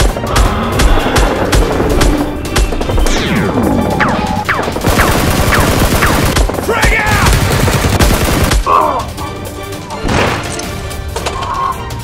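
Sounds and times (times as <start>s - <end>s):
rapid automatic gunfire: 0.0s - 8.7s.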